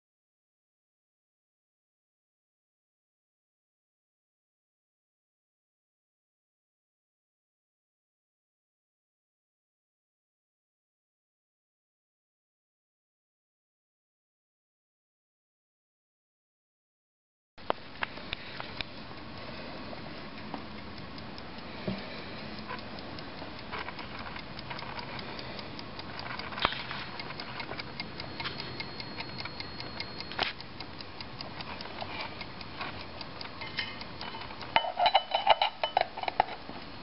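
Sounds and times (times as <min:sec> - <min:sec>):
clock ticking quickly: 0:17.6 - 0:37.0.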